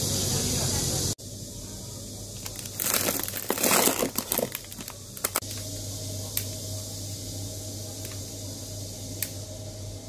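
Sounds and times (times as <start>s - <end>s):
plastic bags crinkling: 2.4s - 5.4s.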